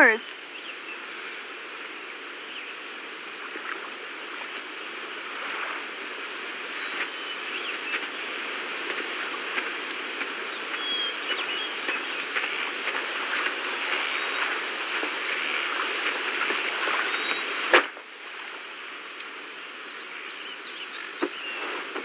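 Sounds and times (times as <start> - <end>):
insect-like hiss: 0.6 - 22.0
faint chirps: 6.6 - 17.6.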